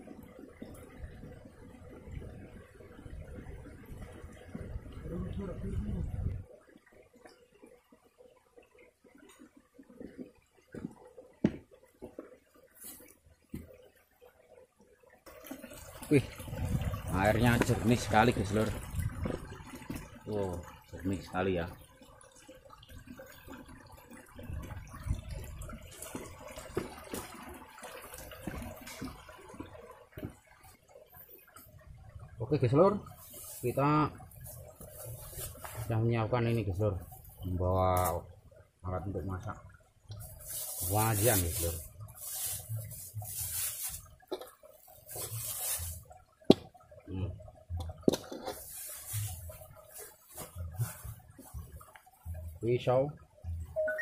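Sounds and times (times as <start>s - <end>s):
stream trickling over rocks: 0.0s - 54.0s
plastic bag rustling and crinkling: 34.4s - 35.9s, 40.2s - 44.1s, 45.0s - 46.0s.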